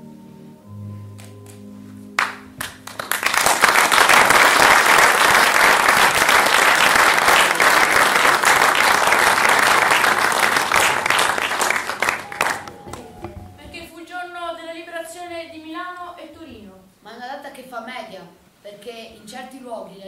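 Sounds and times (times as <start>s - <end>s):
soft sustained music notes: 0.0s - 3.4s, 10.2s - 14.0s
audience applauding: 2.2s - 13.6s.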